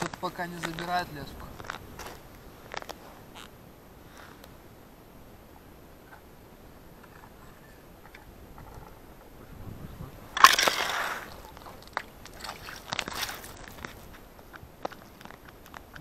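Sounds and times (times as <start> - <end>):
fish slapping on ice: 10.4 - 14.0
fish splashing in water: 10.4 - 14.2.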